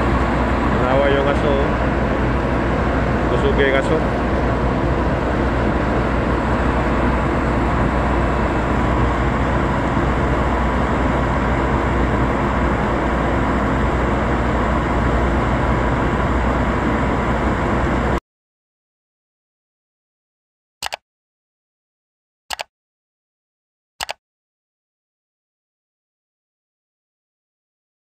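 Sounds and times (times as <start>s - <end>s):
loud machinery drone: 0.0s - 18.2s.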